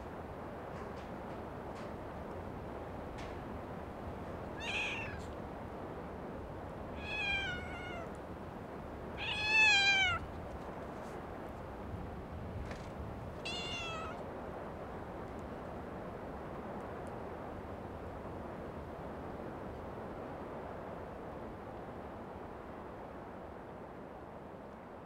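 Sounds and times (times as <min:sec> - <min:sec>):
low background noise: 0:00.0 - 0:25.0
cat meowing: 0:04.6 - 0:05.4, 0:07.0 - 0:08.2, 0:09.2 - 0:10.3, 0:13.4 - 0:14.2.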